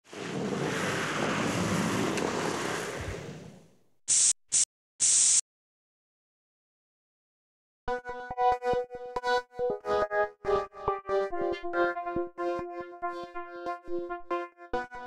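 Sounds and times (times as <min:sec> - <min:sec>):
spray paint can hissing: 0:04.1 - 0:05.4.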